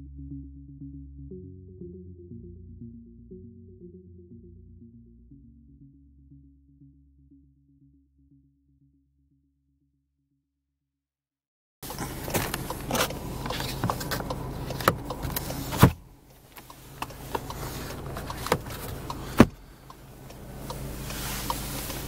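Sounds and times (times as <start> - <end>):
clicks and knocks of handling: 11.8 - 20.8
steady low hum: 11.8 - 22.0.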